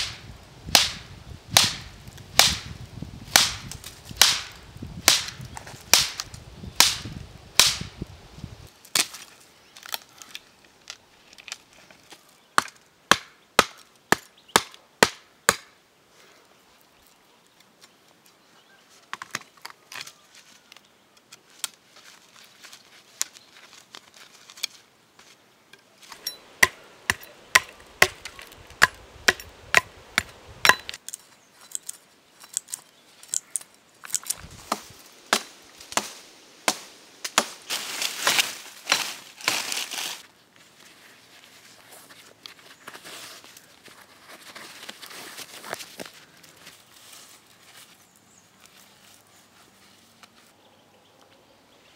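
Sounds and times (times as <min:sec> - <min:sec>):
machete chopping wood: 0:00.0 - 0:07.9, 0:12.6 - 0:15.7, 0:26.1 - 0:31.0, 0:34.7 - 0:37.6.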